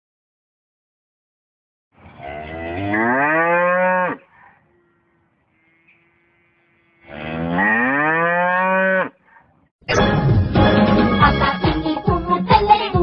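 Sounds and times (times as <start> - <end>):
cow mooing: 2.0 - 9.4.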